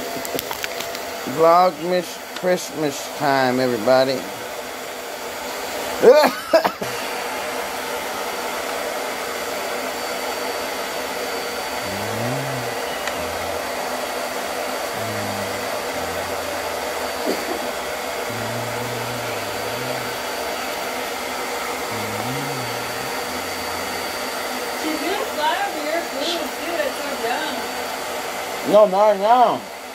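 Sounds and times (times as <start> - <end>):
fan blower whooshing: 6.8 - 28.6.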